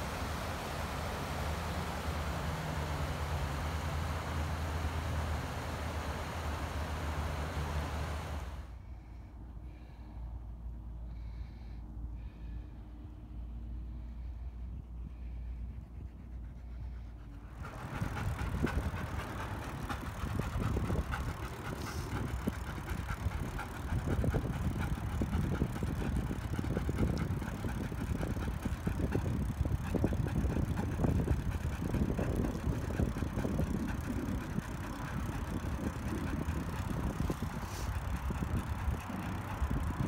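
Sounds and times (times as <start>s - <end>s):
bicycle clicks and rattles: 17.6s - 40.0s
bicycle tyres rumbling on pavement: 17.6s - 40.0s.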